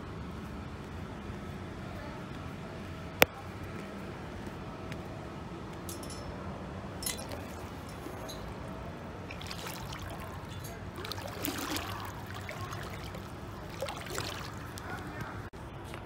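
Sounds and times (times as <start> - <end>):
steady low background noise: 0.0 - 16.0
water splashing and sloshing: 7.0 - 15.5.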